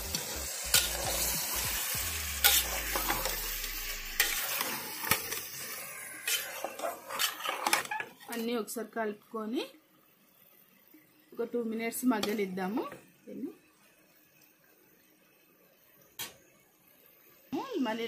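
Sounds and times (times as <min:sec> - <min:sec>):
chicken sizzling in hot oil: 0:00.0 - 0:08.6
spatula scraping and knocking pot: 0:00.7 - 0:01.2, 0:06.2 - 0:08.4.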